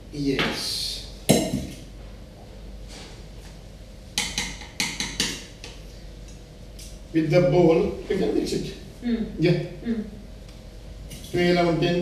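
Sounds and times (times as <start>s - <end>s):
bowl knocking on counter: 1.3s - 1.8s.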